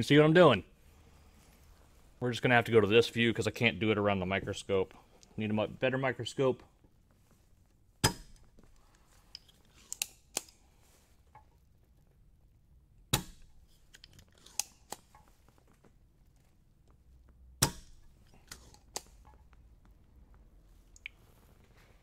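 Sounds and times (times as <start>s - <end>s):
desoldering pump snaps: 9.8s - 10.6s.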